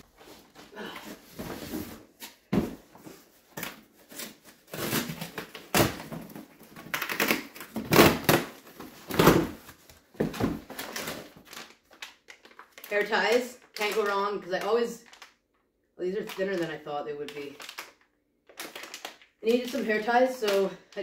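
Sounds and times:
packing tape ripping: 0:04.0 - 0:09.6, 0:17.5 - 0:19.8.

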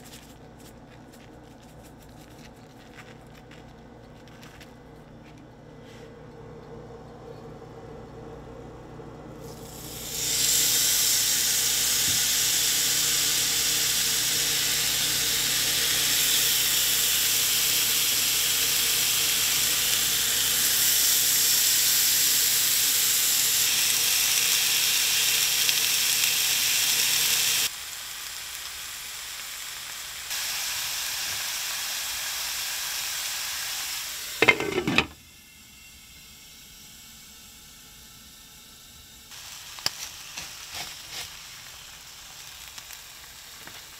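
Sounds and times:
fish sizzling in a skillet: 0:09.5 - 0:35.0, 0:39.3 - 0:43.9
glass lid clattering onto skillet: 0:34.4 - 0:35.2.

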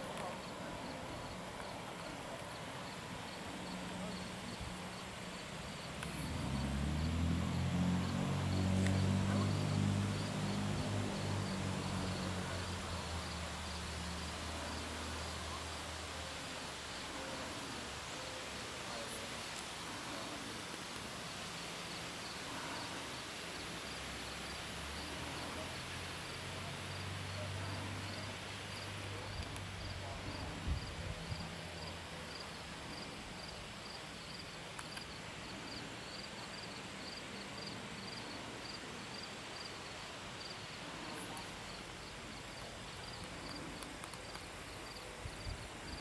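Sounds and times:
faint hiss: 0:00.0 - 0:46.0
insect chirping: 0:00.4 - 0:15.8, 0:29.8 - 0:40.8.

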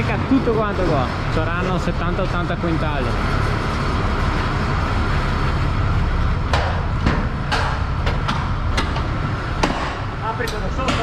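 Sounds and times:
sharp knocks: 0:06.5 - 0:10.1.

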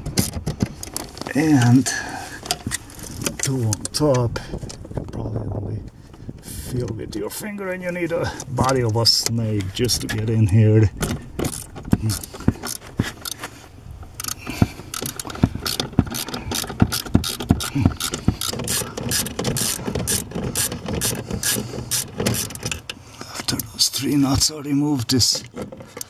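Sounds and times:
ratchet wrench clicking: 0:14.2 - 0:22.9.

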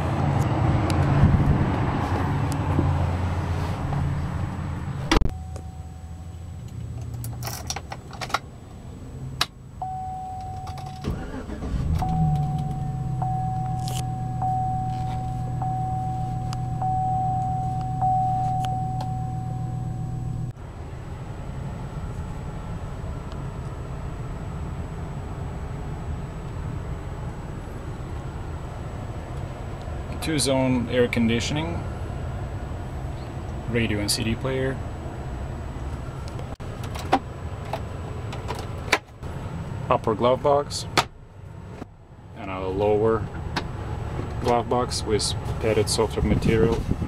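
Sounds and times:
car engine starting and idling: 0:00.0 - 0:47.0
dashboard warning chime: 0:05.0 - 0:06.6, 0:09.8 - 0:20.5.

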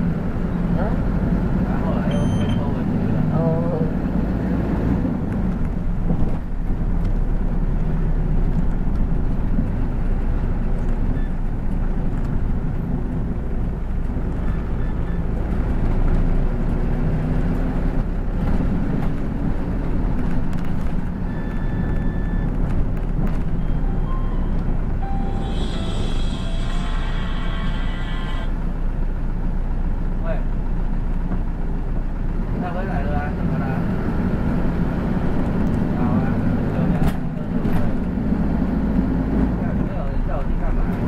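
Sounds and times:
bus engine and road rumble: 0:00.0 - 0:41.0.

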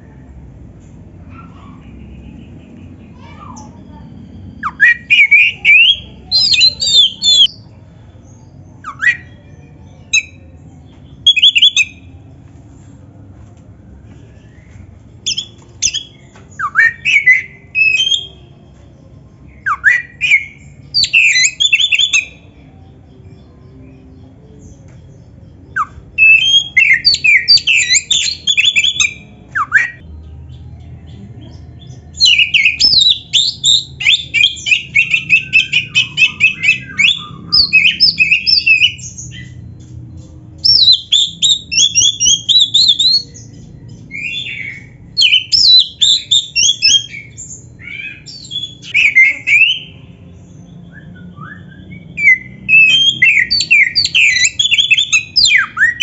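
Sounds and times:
bird singing whistled phrases: 0:03.1 - 0:07.6, 0:08.8 - 0:10.5, 0:14.4 - 0:18.4, 0:19.6 - 0:22.4, 0:25.7 - 0:30.0, 0:32.2 - 0:39.7, 0:40.6 - 0:43.5, 0:44.1 - 0:50.0, 0:50.7 - 0:56.0.

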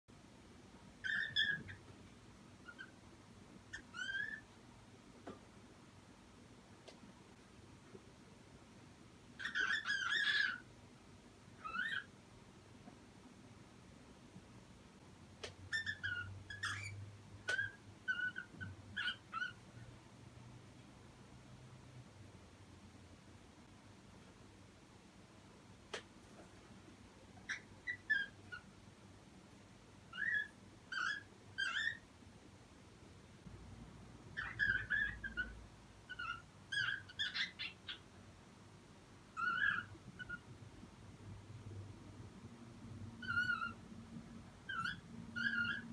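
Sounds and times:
cockatiel chirping: 0:01.0 - 0:01.9, 0:02.6 - 0:03.0, 0:03.7 - 0:04.5, 0:09.4 - 0:10.7, 0:11.6 - 0:12.1, 0:15.7 - 0:19.6, 0:27.4 - 0:28.7, 0:30.1 - 0:32.0, 0:34.4 - 0:38.1, 0:39.3 - 0:40.5, 0:43.2 - 0:43.8, 0:44.6 - 0:45.9.

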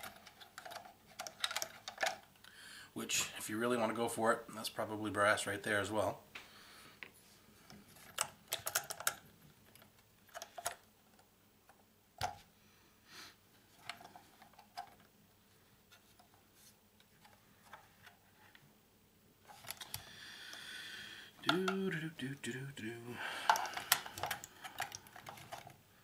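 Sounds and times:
fingers handling small metal parts: 0:00.0 - 0:02.2, 0:23.4 - 0:25.8.

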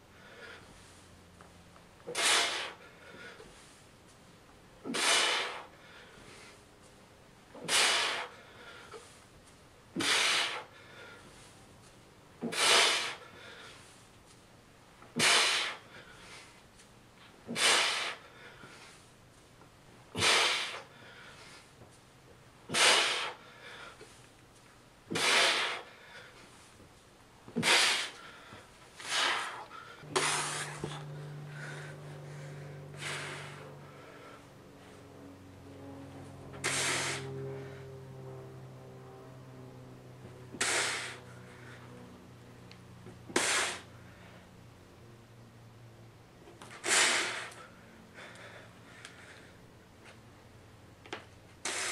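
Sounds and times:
man breathing hard: 0:00.0 - 0:01.3, 0:02.0 - 0:04.1, 0:04.8 - 0:14.2, 0:15.0 - 0:16.7, 0:17.3 - 0:19.4, 0:20.0 - 0:22.0, 0:22.6 - 0:24.3, 0:25.0 - 0:26.8, 0:27.5 - 0:35.0, 0:36.4 - 0:38.1, 0:40.5 - 0:42.2, 0:43.2 - 0:44.6, 0:46.6 - 0:49.8, 0:51.6 - 0:51.9
steady low hum: 0:00.0 - 0:51.9.

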